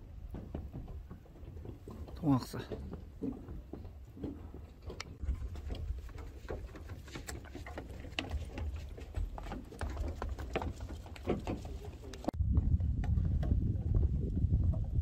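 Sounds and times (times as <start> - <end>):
footsteps on trail: 0.0 - 13.4
low rumble: 12.3 - 15.0.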